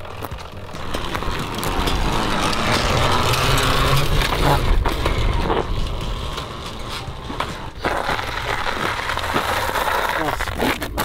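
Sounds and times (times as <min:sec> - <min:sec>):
motorcycle engine revving: 0:00.0 - 0:10.3.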